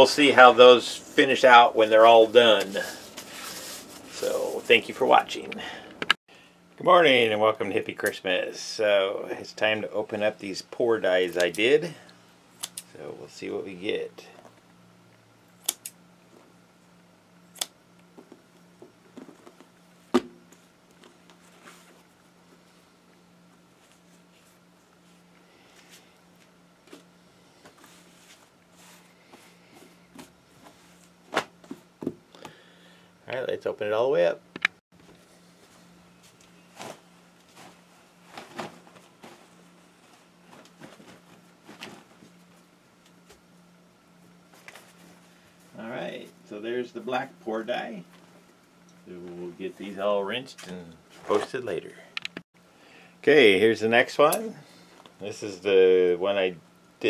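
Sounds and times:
faint steady hum: 0:00.0 - 0:57.0
fabric rustling: 0:02.2 - 0:05.0, 0:35.1 - 0:42.8.

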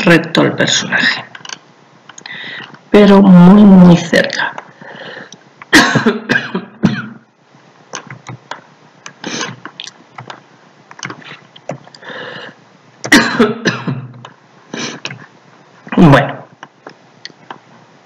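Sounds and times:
keyboard and mouse clicks: 0:07.9 - 0:12.0, 0:15.0 - 0:15.3, 0:16.6 - 0:17.6.

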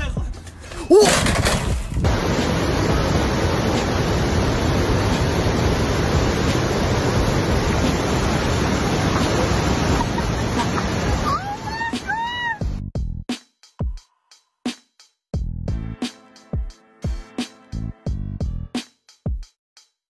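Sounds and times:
person yelping: 0:00.8 - 0:01.3, 0:11.2 - 0:12.6
waterfall roaring: 0:02.1 - 0:12.6.

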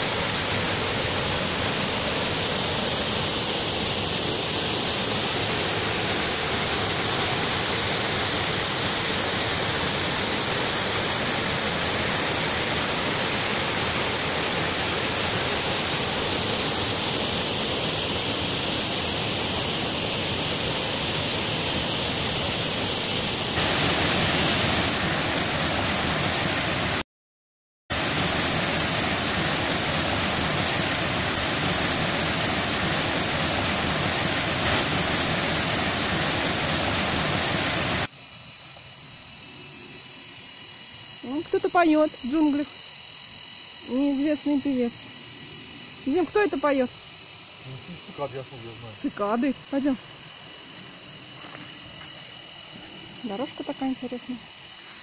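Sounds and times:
waterfall pouring onto rock: 0:23.6 - 0:25.0.

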